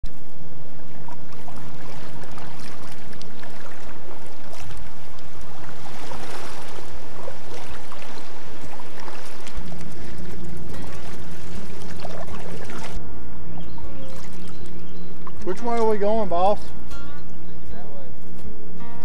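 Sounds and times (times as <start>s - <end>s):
steady low hum: 0.0s - 19.0s
paddle splashing in water: 0.8s - 13.0s, 13.6s - 16.2s
water dripping: 1.0s - 13.0s, 13.9s - 16.0s.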